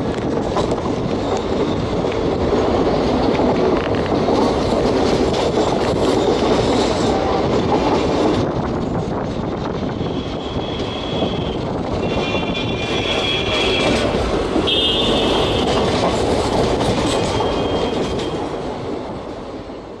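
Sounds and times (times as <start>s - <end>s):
train wheels rumbling on track: 0.0s - 20.0s
high wheel squeal: 17.3s - 18.4s.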